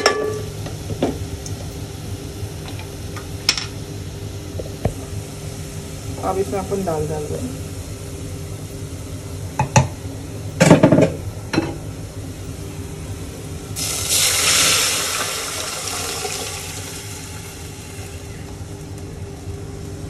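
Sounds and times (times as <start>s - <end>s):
loud sizzle in hot oil: 0.0s - 19.0s
cookware knocks and clanks: 10.6s - 11.8s.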